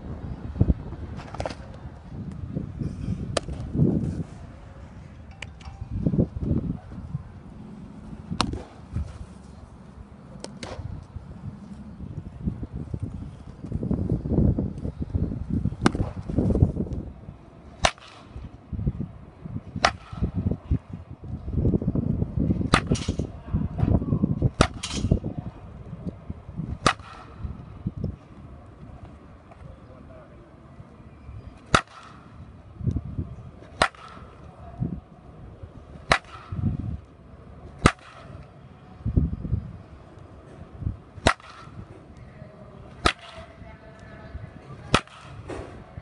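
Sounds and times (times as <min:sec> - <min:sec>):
baseball bat hitting balls: 0:01.1 - 0:01.7, 0:03.3 - 0:03.9, 0:05.2 - 0:06.5, 0:08.1 - 0:09.2, 0:10.3 - 0:11.0, 0:15.8 - 0:16.5, 0:17.8 - 0:18.6, 0:19.7 - 0:20.4, 0:22.5 - 0:25.3, 0:26.6 - 0:27.6, 0:31.6 - 0:32.6, 0:33.6 - 0:34.6, 0:35.8 - 0:37.0, 0:37.6 - 0:38.6, 0:40.4 - 0:42.2, 0:42.8 - 0:43.6, 0:44.7 - 0:45.9.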